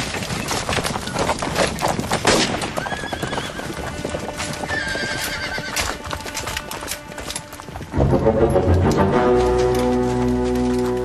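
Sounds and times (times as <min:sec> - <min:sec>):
horses galloping on dirt: 0:00.0 - 0:11.0
horses whinnying: 0:02.4 - 0:07.4
film score music: 0:03.8 - 0:11.0.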